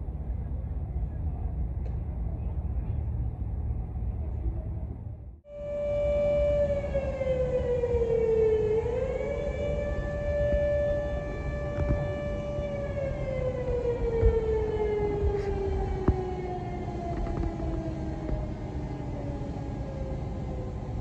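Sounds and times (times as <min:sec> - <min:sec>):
siren winding down: 0:05.5 - 0:21.0.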